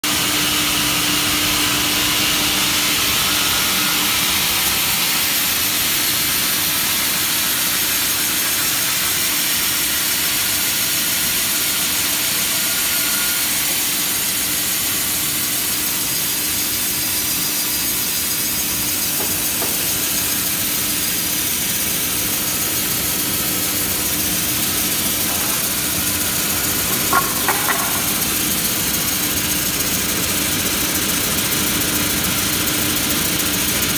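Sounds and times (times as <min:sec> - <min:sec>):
resaw machine motor and saw hiss: 0:00.1 - 0:33.9
sharp knocks: 0:19.2 - 0:20.0, 0:26.8 - 0:28.4.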